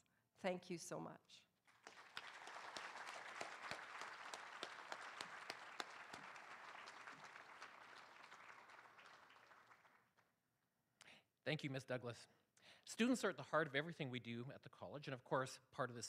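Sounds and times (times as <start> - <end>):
group applauding: 1.6 - 10.3.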